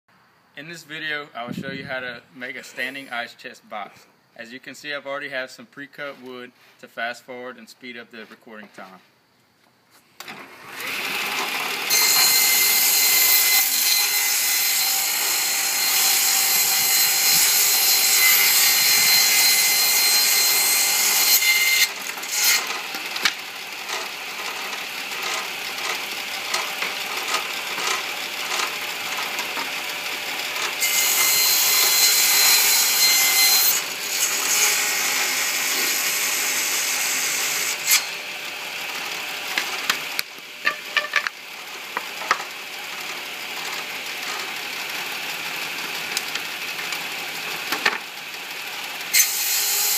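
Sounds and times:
saw blade whine cutting wood: 0:10.2 - 0:49.9
table saw running: 0:10.3 - 0:49.9.

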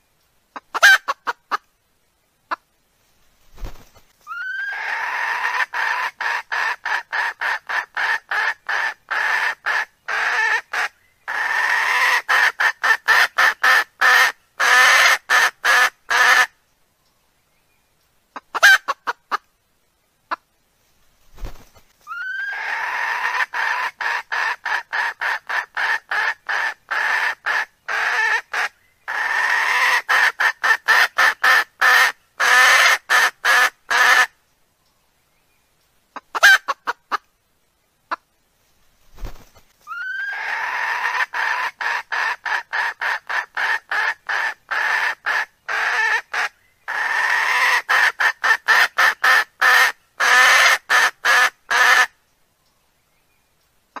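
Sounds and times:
hen cackling: 0:00.5 - 0:01.6, 0:04.3 - 0:16.5, 0:18.4 - 0:19.4, 0:22.1 - 0:34.3, 0:36.2 - 0:37.2, 0:39.9 - 0:52.1.

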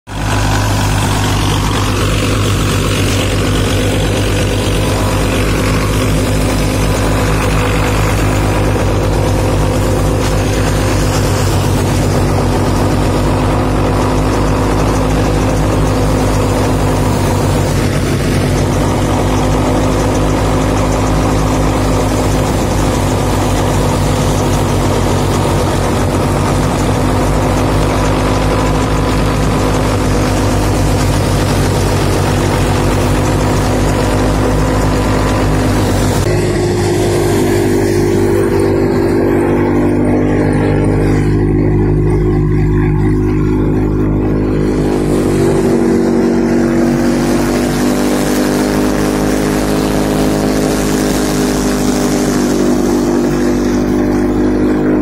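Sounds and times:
tractor diesel engine running: 0:00.0 - 0:55.0
thresher humming: 0:00.1 - 0:55.0.

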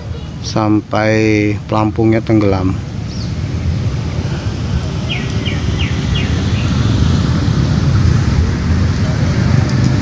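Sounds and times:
low rumble: 0:02.7 - 0:10.0
bird chirping: 0:03.0 - 0:03.4, 0:05.0 - 0:07.0.

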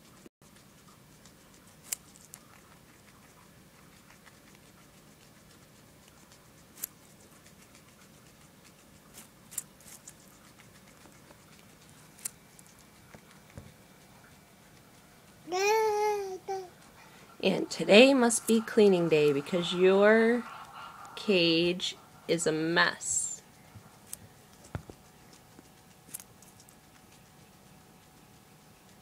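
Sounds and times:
guinea pig crunching carrot: 0:00.0 - 0:15.8, 0:22.0 - 0:29.0.

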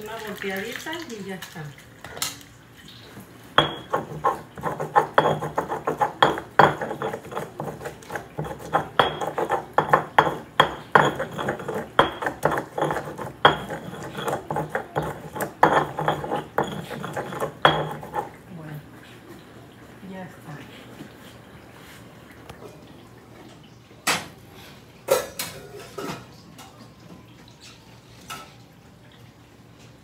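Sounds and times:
utensils clinking against dishes: 0:03.6 - 0:18.4, 0:25.1 - 0:26.8.

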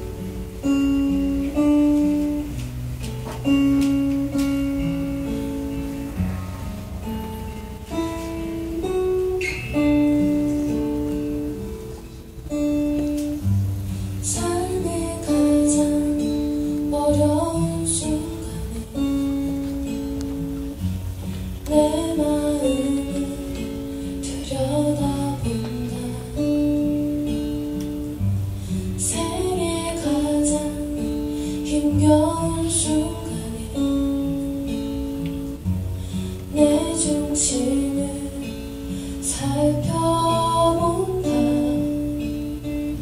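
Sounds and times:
acoustic guitar: 0:00.0 - 0:43.0
woman singing with vibrato: 0:14.1 - 0:20.0, 0:21.6 - 0:28.2, 0:28.8 - 0:35.2, 0:36.4 - 0:43.0.

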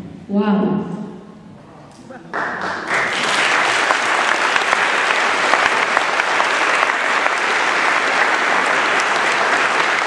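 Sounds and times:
audience applauding: 0:02.3 - 0:10.0.

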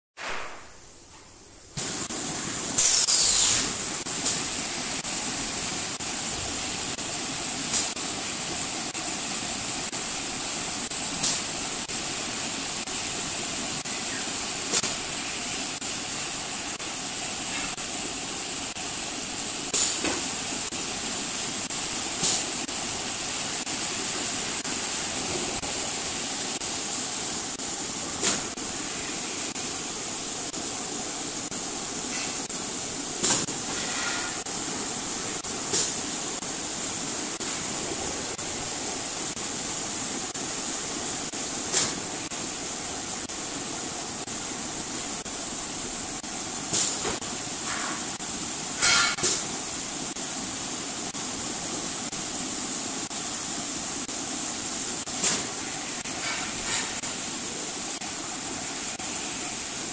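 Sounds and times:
keg washer spraying hiss: 0:00.2 - 0:59.9
short sharp bursts: 0:02.8 - 0:03.9.

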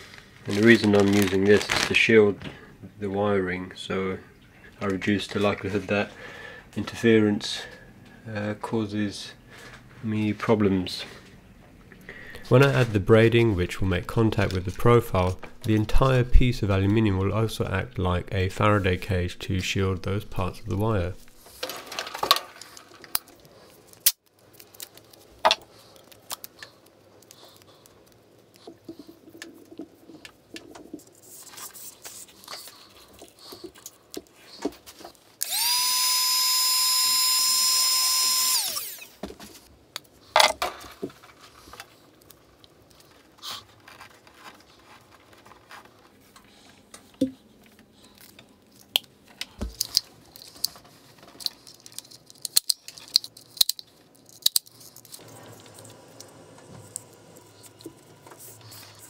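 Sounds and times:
heat gun fan whining: 0:35.4 - 0:39.3.

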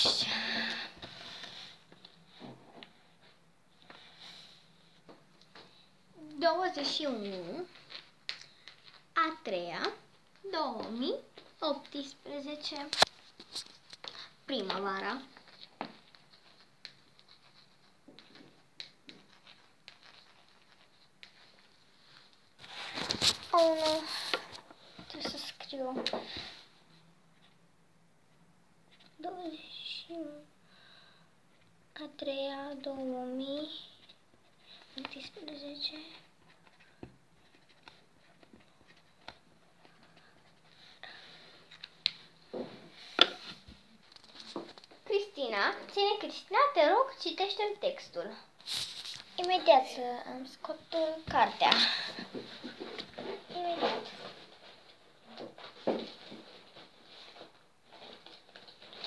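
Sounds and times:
paper rustling: 0:12.7 - 0:26.4, 0:34.7 - 0:45.1, 0:48.6 - 0:49.7, 0:51.0 - 0:59.0.

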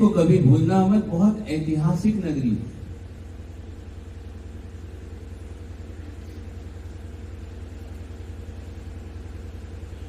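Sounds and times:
faint background noise: 0:00.0 - 0:10.0
steady low hum: 0:00.0 - 0:10.0.

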